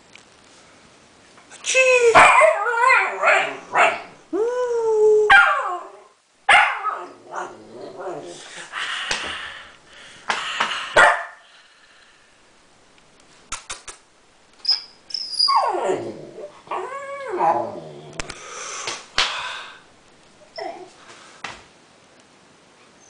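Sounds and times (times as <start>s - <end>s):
puppy howling: 2.1s - 4.1s, 5.0s - 8.3s, 15.2s - 18.2s
puppy barking: 2.2s - 4.1s, 5.3s - 5.8s, 6.5s - 7.1s, 11.0s - 11.4s.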